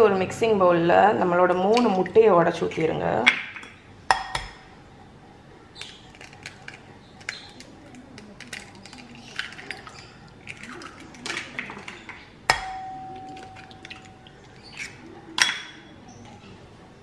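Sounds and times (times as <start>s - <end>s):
eggs cracking on glass bowl: 5.8s - 16.0s
glass bowl ringing: 12.5s - 14.6s.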